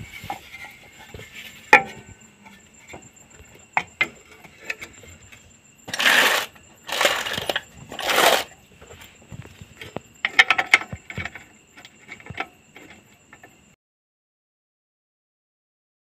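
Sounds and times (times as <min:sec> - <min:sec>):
metal scraping rushes: 0:05.9 - 0:08.6.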